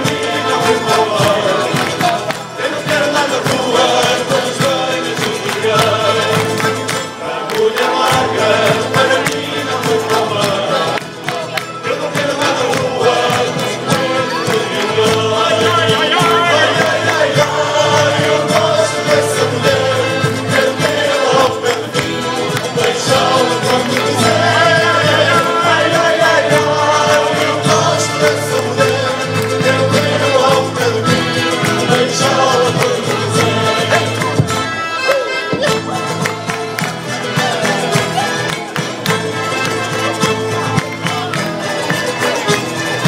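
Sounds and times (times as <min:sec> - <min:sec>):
men singing in chorus: 0:00.0 - 0:35.3
accordion: 0:00.0 - 0:43.0
guitars strummed and plucked: 0:00.0 - 0:43.0
mandolin: 0:00.0 - 0:43.0.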